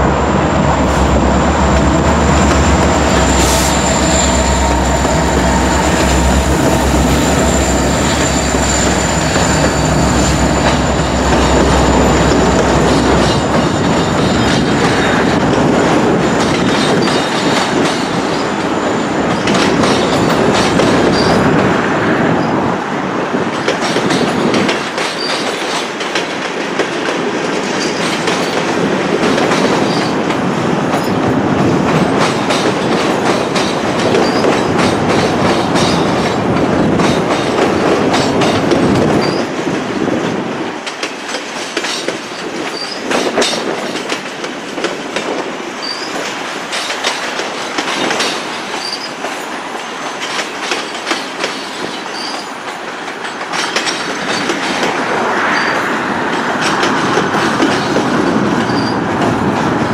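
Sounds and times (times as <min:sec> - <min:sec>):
train wheels clicking on rail joints: 0:00.0 - 0:22.6, 0:23.3 - 0:59.9
wheel squeal: 0:03.0 - 0:12.9, 0:52.0 - 0:52.6, 0:58.7 - 0:59.0.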